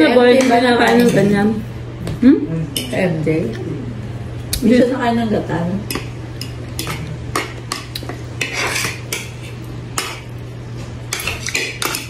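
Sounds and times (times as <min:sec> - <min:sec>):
cutlery clinking on ceramic plate: 0:11.1 - 0:12.0.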